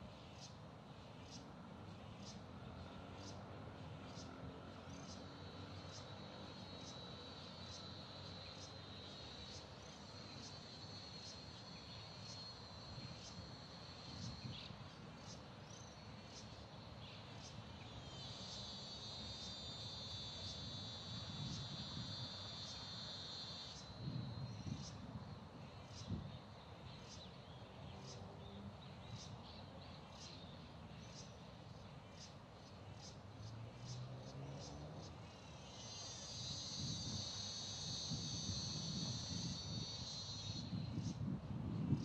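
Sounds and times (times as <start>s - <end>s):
insects trilling and chirping: 0.0s - 42.0s
loud high insect buzz: 4.1s - 16.6s, 17.4s - 25.3s, 33.0s - 42.0s.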